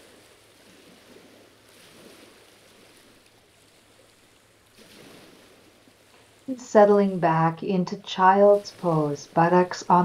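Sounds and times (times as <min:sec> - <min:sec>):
faint steady hiss: 0:02.7 - 0:10.0.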